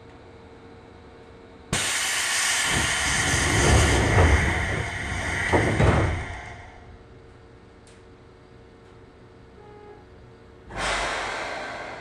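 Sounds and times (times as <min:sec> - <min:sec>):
train door air hiss: 0:01.7 - 0:06.9, 0:10.7 - 0:12.0
sliding doors closing: 0:02.6 - 0:06.8
low thuds: 0:02.7 - 0:06.9.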